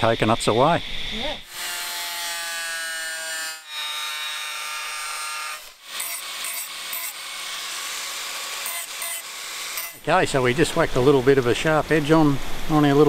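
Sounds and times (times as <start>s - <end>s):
angle grinder grinding steel: 0.1s - 10.5s.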